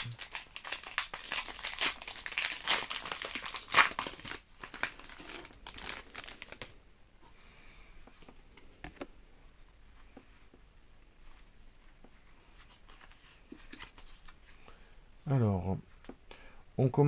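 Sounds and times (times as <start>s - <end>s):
foil wrapper crinkling: 0.0s - 6.8s
cards being handled: 11.2s - 14.6s.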